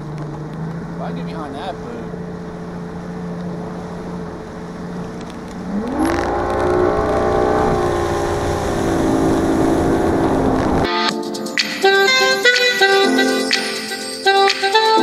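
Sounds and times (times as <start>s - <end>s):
outboard motor revving: 0.0s - 10.9s
water rushing past hull: 0.0s - 10.9s.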